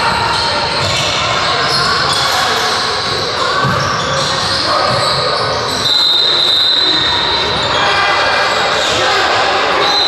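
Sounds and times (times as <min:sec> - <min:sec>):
referee's whistle: 0:04.9 - 0:07.8, 0:09.7 - 0:10.0.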